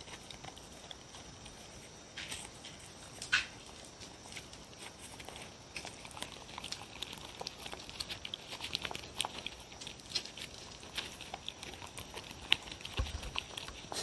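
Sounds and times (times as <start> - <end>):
dogs licking and smacking: 0.0 - 14.0.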